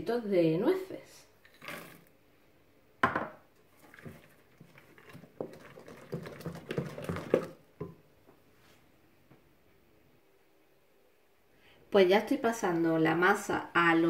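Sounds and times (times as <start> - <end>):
spoon scraping batter: 3.7 - 7.6.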